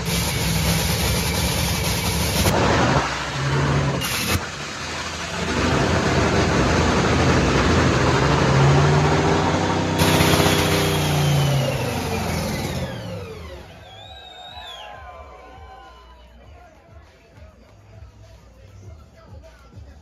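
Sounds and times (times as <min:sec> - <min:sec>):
dragster engine revving: 0:00.0 - 0:14.0.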